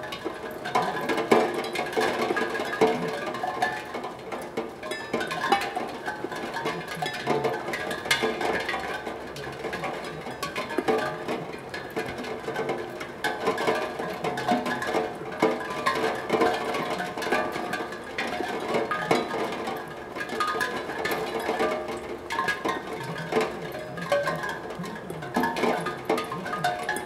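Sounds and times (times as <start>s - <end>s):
raindrops ringing a tongue drum: 0.0s - 27.0s.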